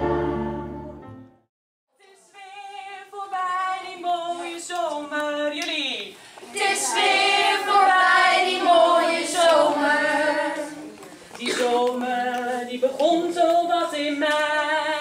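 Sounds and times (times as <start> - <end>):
choir singing held notes: 0.0 - 1.2, 6.4 - 11.6.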